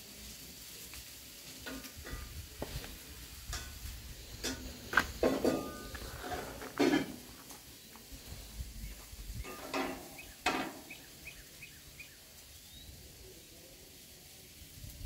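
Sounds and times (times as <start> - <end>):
small bird chirping: 8.8 - 13.0.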